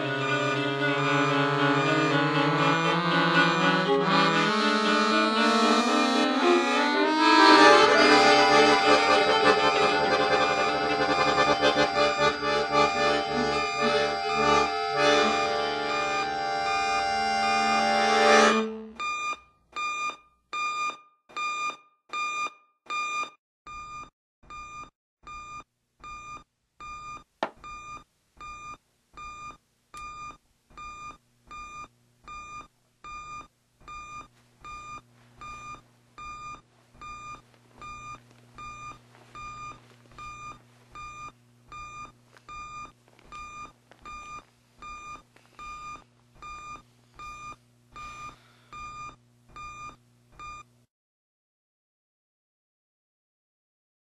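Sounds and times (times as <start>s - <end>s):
digital alarm clock beeping: 19.0s - 50.7s.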